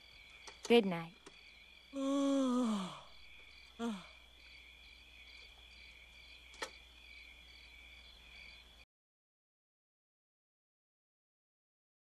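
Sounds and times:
crickets chirping: 0.0s - 8.9s
sharp click: 6.5s - 6.8s.

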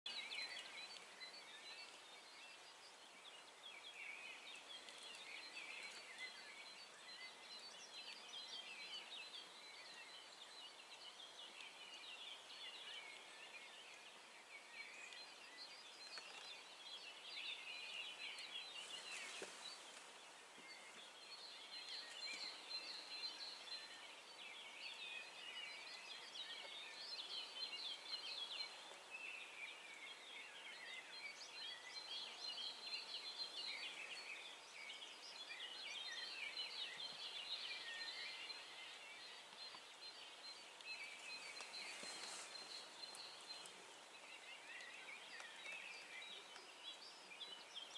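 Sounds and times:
small birds chirping: 0.0s - 47.9s
light hiss: 14.9s - 24.6s.

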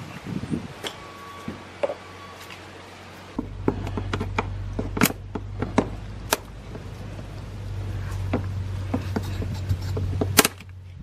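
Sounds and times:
low steady hum: 0.8s - 11.0s
sharp plastic clicks and knocks: 3.4s - 6.9s.

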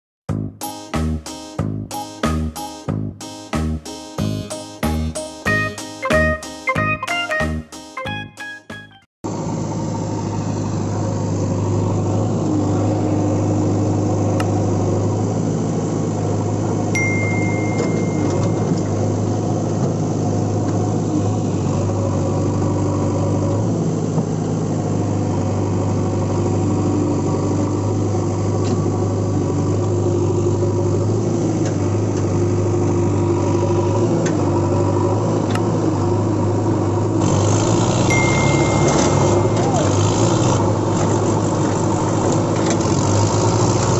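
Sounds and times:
heavy machine engine droning: 9.3s - 43.9s.

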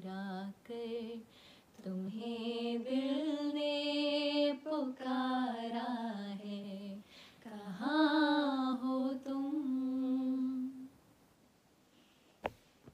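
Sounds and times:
woman singing unaccompanied: 0.0s - 10.9s
woman breathing: 1.3s - 1.8s, 7.0s - 7.4s.

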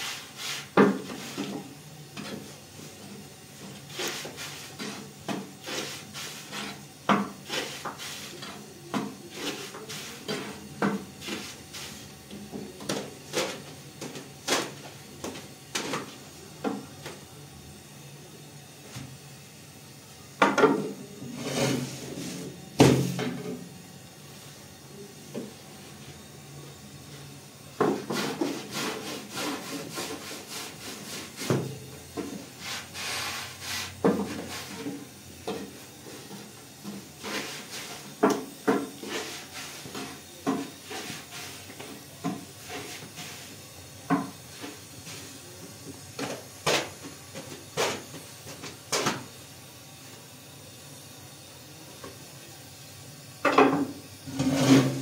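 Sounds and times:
scraping on a hard surface: 21.3s - 22.5s, 54.2s - 55.0s.

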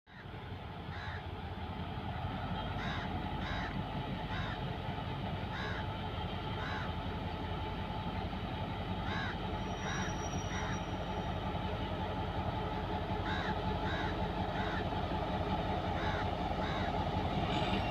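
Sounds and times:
diesel locomotive rumble: 0.1s - 17.9s
crows cawing: 0.9s - 1.3s, 2.8s - 4.7s, 5.5s - 5.9s, 6.6s - 7.0s, 9.0s - 10.8s, 13.2s - 14.9s, 16.0s - 17.0s.

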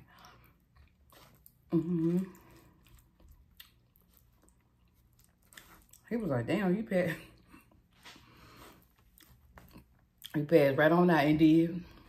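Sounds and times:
person chewing food: 0.0s - 6.1s, 7.4s - 10.3s.

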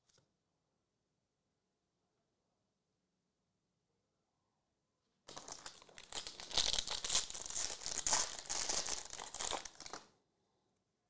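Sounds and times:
foil wrapper crinkling: 5.3s - 10.0s.

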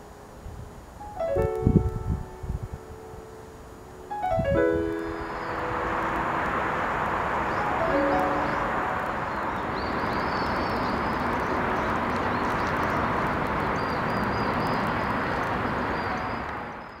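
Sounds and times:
outdoor background noise: 0.0s - 17.0s
high bird-like chirps: 4.8s - 5.9s, 7.5s - 13.0s.

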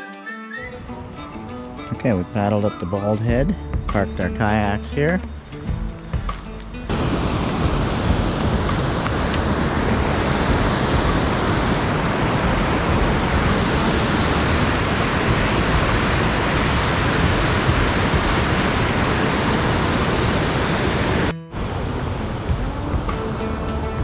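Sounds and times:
waterfall and rapids rushing: 6.8s - 24.0s.

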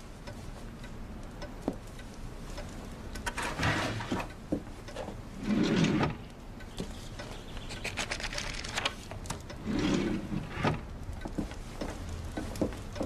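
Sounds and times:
scraping rustle: 3.3s - 4.3s
light handling knocks and clicks: 10.6s - 13.0s.

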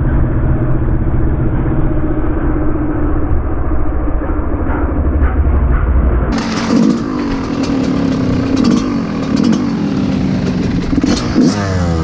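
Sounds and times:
clatter and ticks: 5.2s - 11.9s
dirt bike engine revving: 6.3s - 12.0s.

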